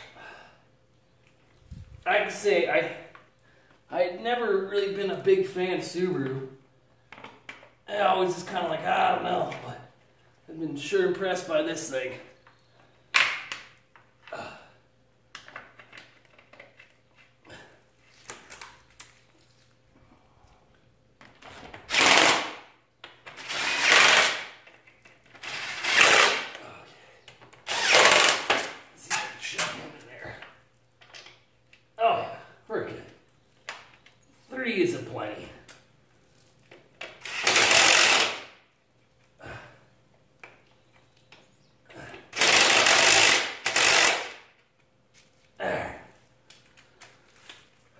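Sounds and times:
parts clicking and knocking: 0:15.3 - 0:17.4
power driver whirring: 0:37.2 - 0:38.5, 0:42.4 - 0:44.4.

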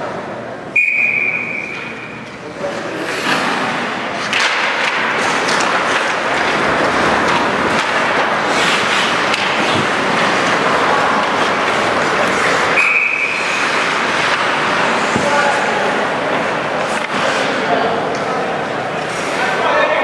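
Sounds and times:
referee's whistle: 0:00.7 - 0:01.9, 0:12.8 - 0:13.4
skates scraping ice: 0:01.3 - 0:20.0
stick and puck clicks: 0:04.2 - 0:15.2, 0:16.4 - 0:18.4.

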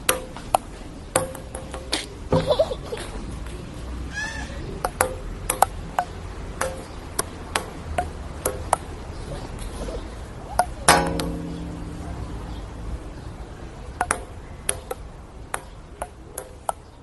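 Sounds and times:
table tennis ball hit back and forth: 0:00.0 - 0:02.6, 0:04.8 - 0:09.1, 0:10.6 - 0:13.1, 0:13.9 - 0:17.0.

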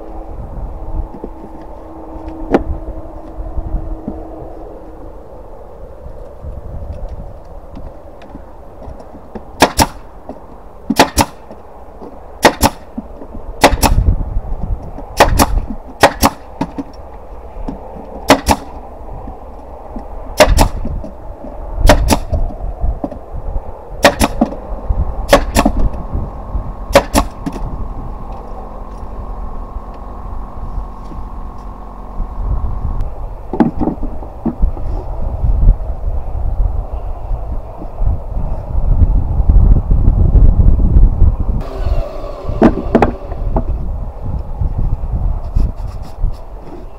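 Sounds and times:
nail gun shots: 0:09.6 - 0:10.0, 0:10.9 - 0:11.5, 0:12.4 - 0:12.9, 0:13.6 - 0:14.0, 0:15.2 - 0:16.5, 0:18.3 - 0:18.8, 0:20.4 - 0:20.9, 0:21.8 - 0:22.4, 0:24.0 - 0:24.6, 0:25.3 - 0:25.8, 0:26.9 - 0:27.5
air compressor motor hum: 0:41.6 - 0:44.6.

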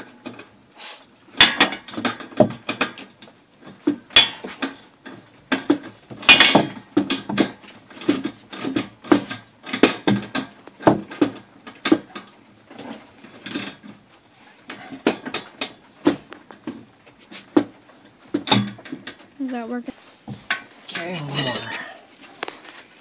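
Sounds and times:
clanks on steel track: 0:01.4 - 0:03.2, 0:03.9 - 0:13.8.

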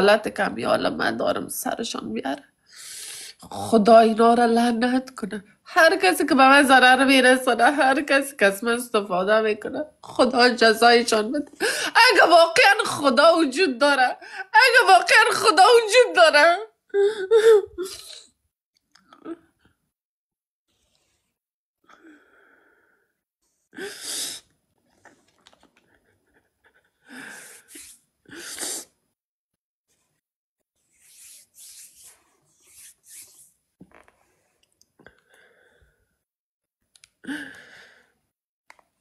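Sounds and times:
woman sobbing and sniffing: 0:16.9 - 0:18.4, 0:25.9 - 0:29.0.

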